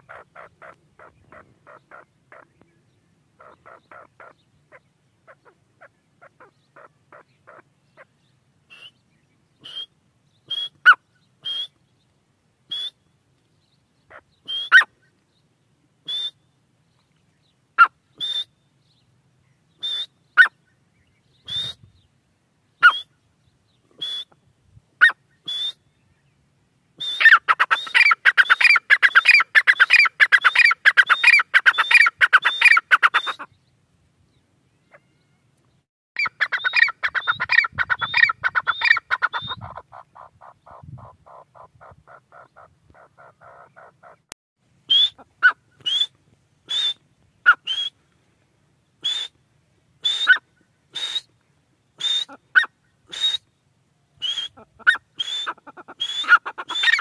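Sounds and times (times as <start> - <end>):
francolin calling: 0.0 - 2.6, 3.4 - 8.1, 27.0 - 33.6, 36.2 - 44.3, 44.9 - 48.0, 54.2 - 57.0.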